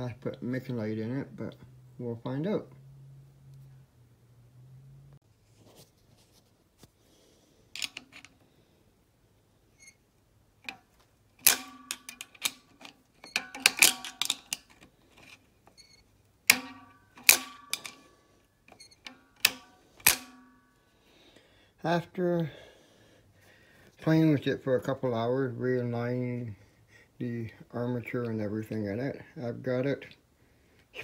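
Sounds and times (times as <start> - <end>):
sharp metallic clicks: 10.6 - 14.9, 15.7 - 18.1, 18.7 - 20.8.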